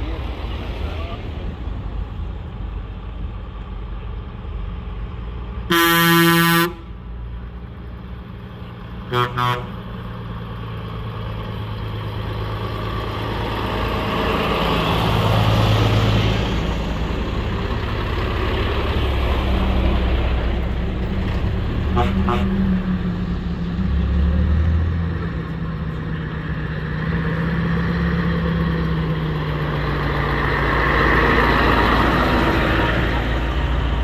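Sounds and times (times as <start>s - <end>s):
steady engine noise: 0.0s - 34.0s
vehicle horns honking: 5.7s - 6.9s, 9.1s - 9.7s, 21.9s - 22.6s.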